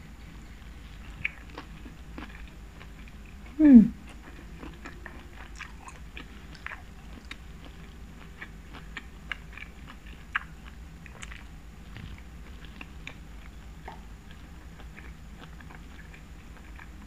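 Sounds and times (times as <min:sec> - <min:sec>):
wet chewing mouth clicks: 0:01.0 - 0:17.0.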